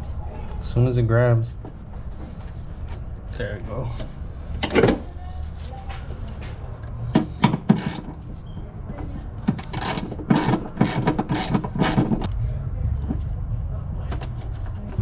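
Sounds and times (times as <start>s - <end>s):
ratchet wrench clicking: 7.7s - 8.1s, 9.6s - 12.3s.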